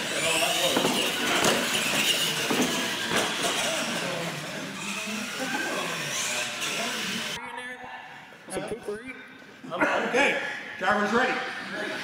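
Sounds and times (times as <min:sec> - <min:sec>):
toy truck motor whining: 0:00.0 - 0:07.4
large hall noise: 0:00.0 - 0:12.0.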